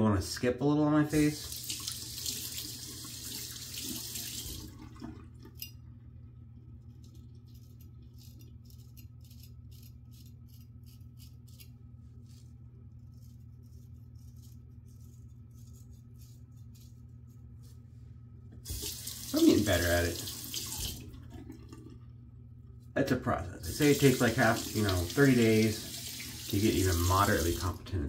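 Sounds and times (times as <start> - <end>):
tap water running into sink: 1.4 - 5.6, 18.6 - 22.0, 23.7 - 27.8
razor scraping stubble: 7.0 - 17.5.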